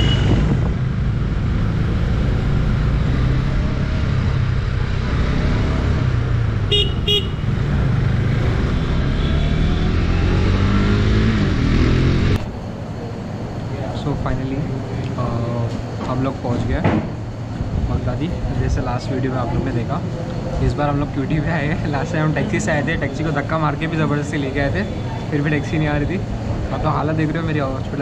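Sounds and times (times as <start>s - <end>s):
city traffic: 0.0s - 28.0s
short horn beeps: 6.7s - 7.5s.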